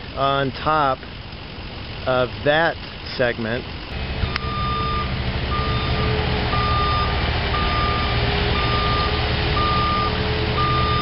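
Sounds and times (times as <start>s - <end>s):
construction machine engine running: 0.0s - 11.0s
reversing alarm beeping: 4.2s - 11.0s.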